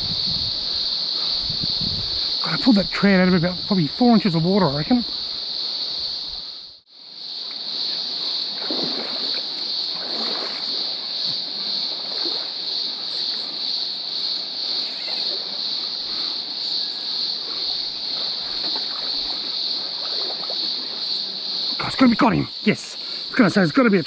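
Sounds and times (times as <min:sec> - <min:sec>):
high-pitched insect chorus: 0:00.0 - 0:24.0
feet wading through water: 0:08.3 - 0:13.6, 0:14.8 - 0:21.9
stream trickling over rocks: 0:17.3 - 0:24.0.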